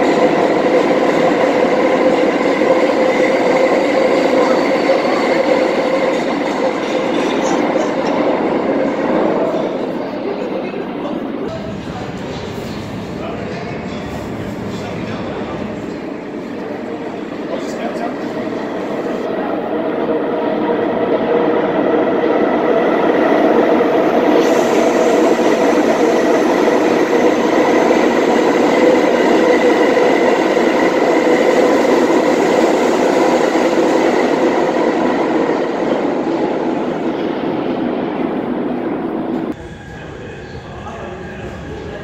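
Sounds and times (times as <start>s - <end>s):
subway train rumble and whine: 0.0s - 42.0s.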